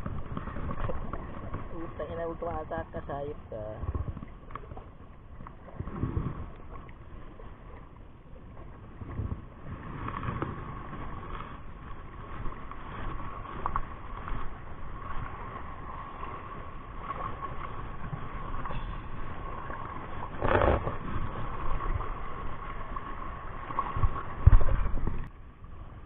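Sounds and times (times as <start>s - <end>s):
sea water washing around rocks: 0.0s - 26.0s.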